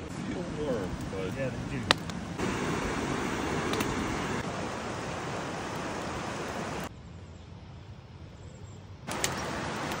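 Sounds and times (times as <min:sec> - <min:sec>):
river rapids rushing: 0:02.4 - 0:06.9.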